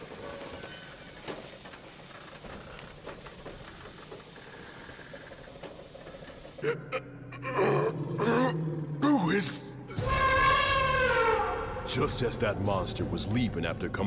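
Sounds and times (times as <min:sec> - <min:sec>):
faint crackling pattering noise: 0:00.0 - 0:06.6
small irregular ticks: 0:00.0 - 0:06.6.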